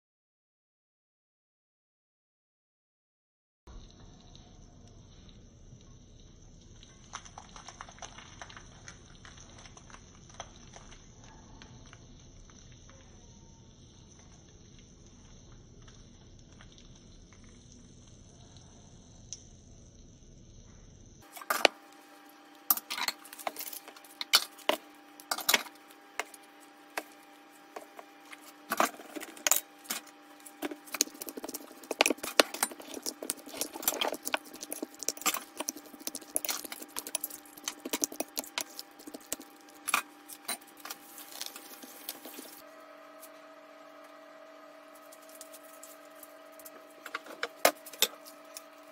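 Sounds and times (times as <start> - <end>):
utensil clinking in glass bowl: 22.7 - 26.4, 27.8 - 42.6.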